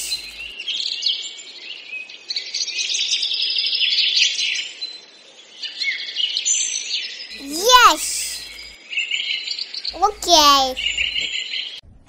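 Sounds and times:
birds chirping: 9.9s - 11.3s.

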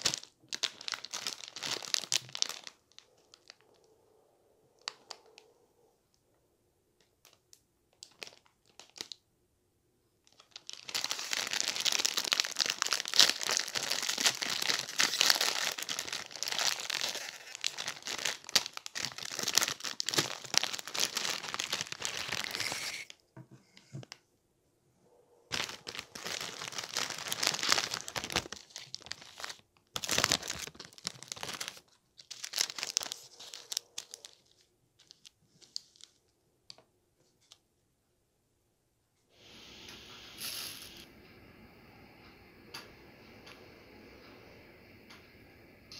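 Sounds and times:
plastic wrapper crinkling and tearing: 0.0s - 3.9s, 4.8s - 5.5s, 7.1s - 9.2s, 10.2s - 23.2s, 25.5s - 36.8s.

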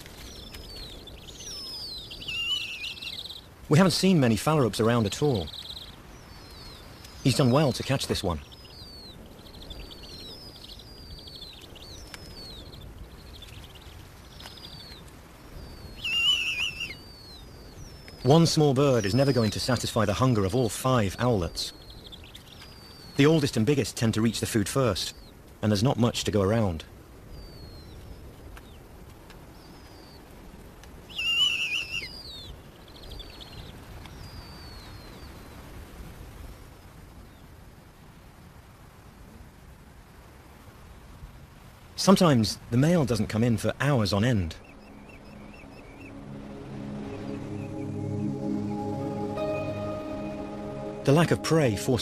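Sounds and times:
low steady hiss: 0.0s - 52.0s
owlets whistling calls: 0.4s - 4.0s, 15.6s - 20.2s, 31.1s - 33.5s, 43.0s - 46.2s
owl chick high squealing call: 15.9s - 17.4s, 31.1s - 32.4s
rapid peeping: 42.8s - 52.0s.

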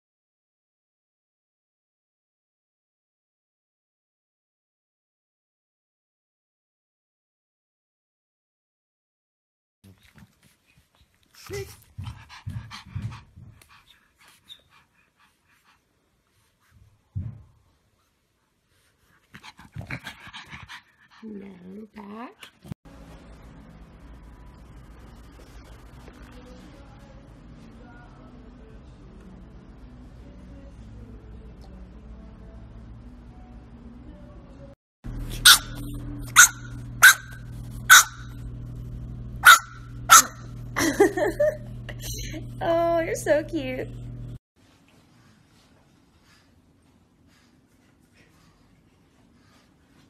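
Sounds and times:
dog panting: 10.0s - 17.2s, 18.5s - 22.8s, 45.0s - 50.0s
puppy barking in high yaps: 35.3s - 38.3s, 39.4s - 40.5s.

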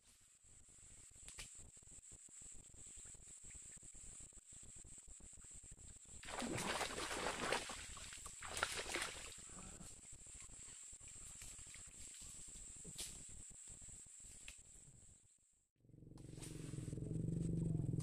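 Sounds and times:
sharp water slap: 6.2s - 9.3s
fish thrashing and splashing: 6.3s - 9.3s.

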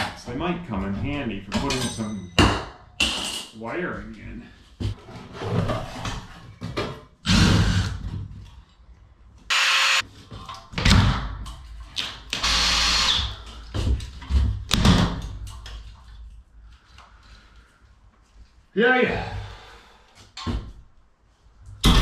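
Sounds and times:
cordless drill running: 9.5s - 10.0s, 12.4s - 13.3s.

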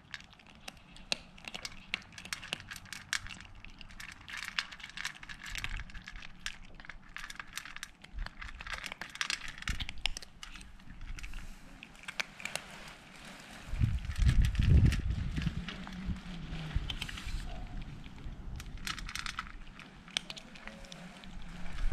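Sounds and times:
kittens crunching dry kibble: 0.0s - 21.9s.

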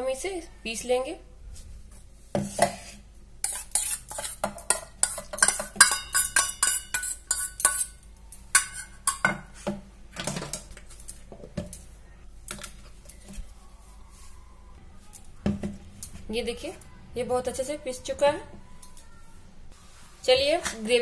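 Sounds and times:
steel spoon scraping metal pot: 2.8s - 9.3s.

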